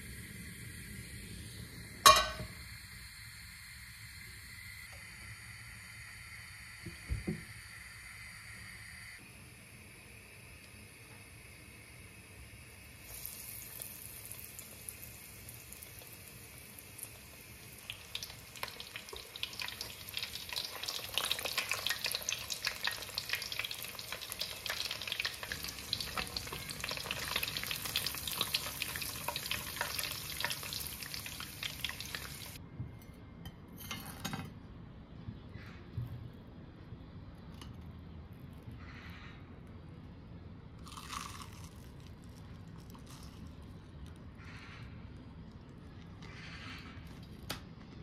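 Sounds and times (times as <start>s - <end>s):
onion rings deep-frying in oil: 0.0s - 9.1s, 12.5s - 32.6s.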